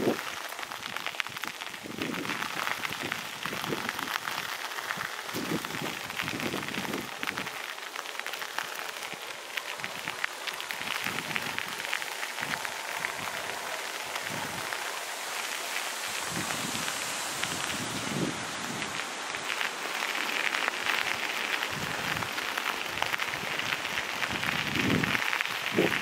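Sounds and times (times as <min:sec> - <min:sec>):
wind buffeting microphone: 0:00.0 - 0:07.7, 0:09.0 - 0:15.2, 0:15.8 - 0:26.0
crackling rustle: 0:00.0 - 0:26.0.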